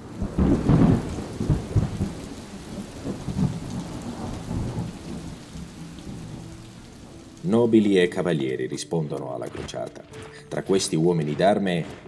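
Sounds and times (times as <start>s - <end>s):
thunder rolling: 0.0s - 6.7s
steady rain: 0.0s - 9.2s.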